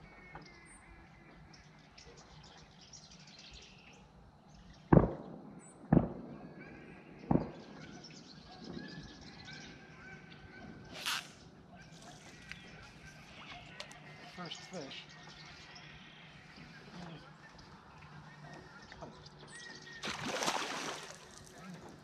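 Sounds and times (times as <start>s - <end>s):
gunshots with echo: 4.9s - 8.8s.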